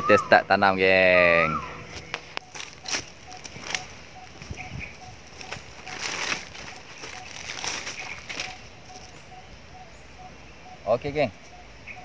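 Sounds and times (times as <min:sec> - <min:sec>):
hands rustling leaves and soil: 0:00.0 - 0:09.3.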